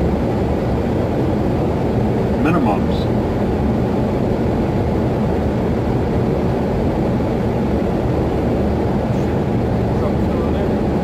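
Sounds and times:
aircraft engine and airflow rumble: 0.0 - 11.0.

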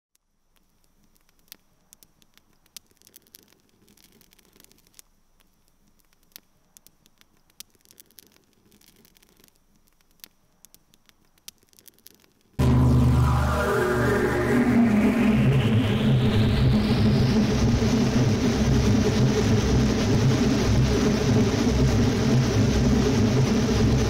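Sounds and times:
faint clicks and crackles: 0.1 - 12.6
loud electronic music: 12.6 - 17.6
faint high whine: 12.6 - 24.0.

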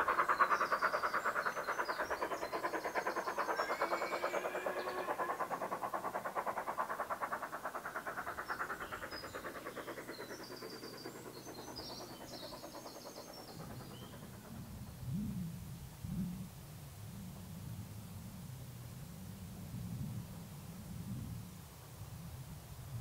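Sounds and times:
birds calling: 0.0 - 14.4
steam locomotive exhaust beats: 0.0 - 16.8.

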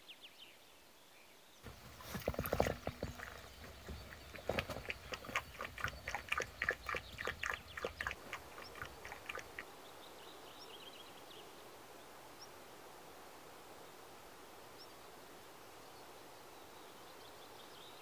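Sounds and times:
puppy lapping from metal bowl: 1.8 - 9.6.

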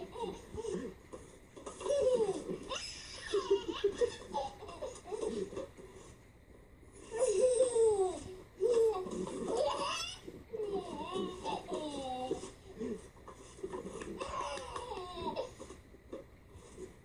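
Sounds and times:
baby laughing: 0.0 - 0.9, 1.6 - 5.7, 7.0 - 12.8, 13.8 - 15.6.

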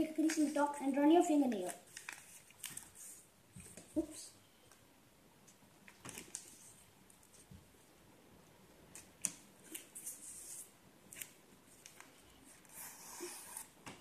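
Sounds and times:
paper rustling and crinkling: 1.4 - 4.1, 5.9 - 7.5.

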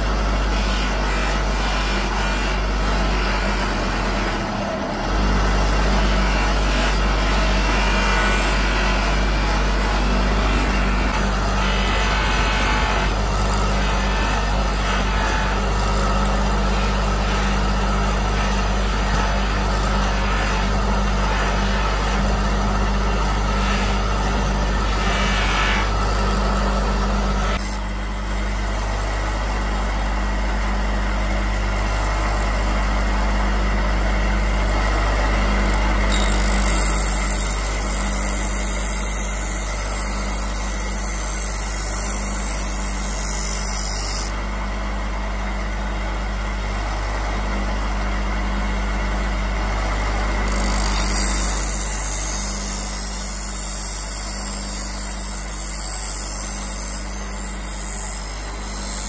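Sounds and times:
grinder motor humming: 0.0 - 59.0
knife blade scraping grinding disc: 27.5 - 27.9, 35.6 - 44.3, 50.5 - 59.0.

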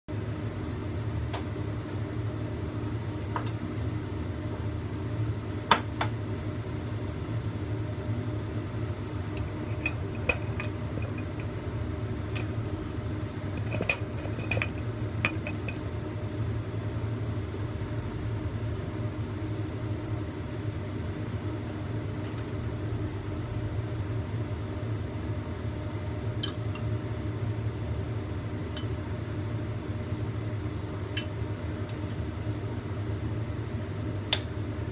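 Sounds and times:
dishes and spoon clinking: 9.4 - 11.5, 13.6 - 15.8, 28.8 - 29.0.

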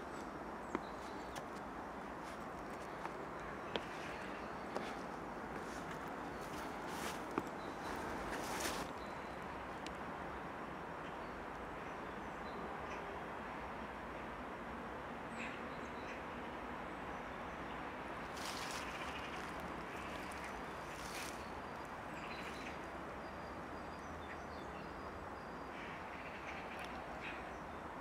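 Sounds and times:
distant city traffic hum: 0.0 - 28.0
bird calls: 18.4 - 22.8.

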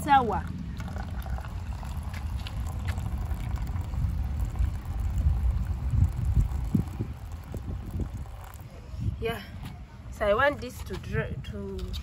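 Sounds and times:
wind rumble on microphone: 0.0 - 12.0
liquid pouring into metal bowl: 0.3 - 8.9.

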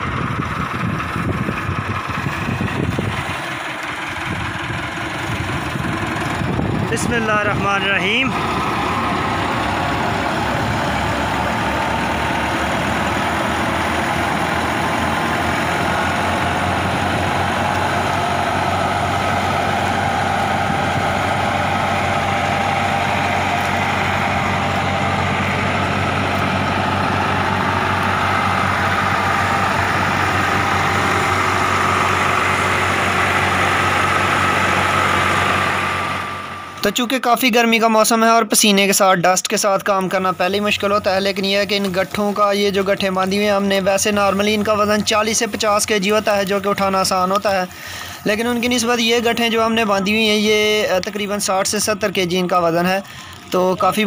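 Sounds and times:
thresher whirring: 0.0 - 37.5, 39.8 - 54.0
steady whine: 0.0 - 38.2
tractor diesel engine running: 0.0 - 54.0.

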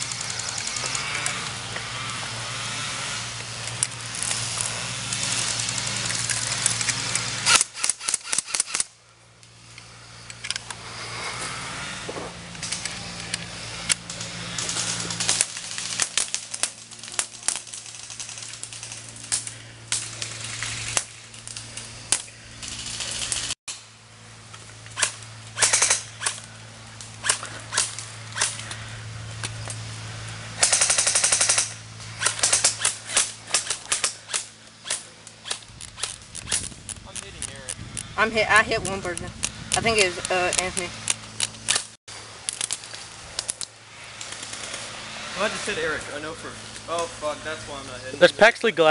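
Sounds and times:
airsoft rifle shots: 7.4 - 8.9, 25.0 - 26.4, 30.6 - 36.7
rapid full-auto burst: 7.4 - 8.9, 25.0 - 26.4, 30.6 - 36.6.

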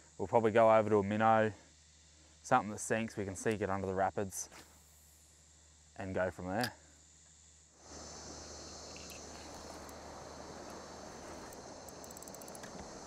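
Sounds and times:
insects chirring: 0.0 - 13.0
fast high ticks: 10.6 - 13.0.

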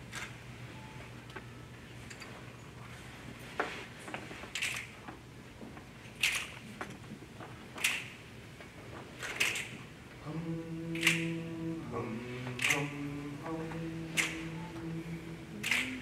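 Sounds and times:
a cappella voices holding chord: 10.2 - 16.0
finger snaps: 11.0 - 11.4, 14.2 - 14.5, 15.6 - 16.0.

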